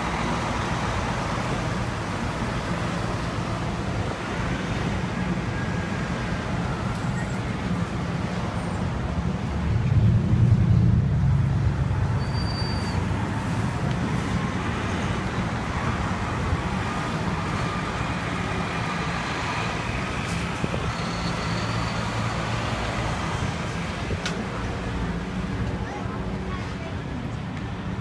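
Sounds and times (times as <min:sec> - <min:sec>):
traffic driving past: 0:00.0 - 0:28.0
brief high squeaks: 0:12.2 - 0:13.1.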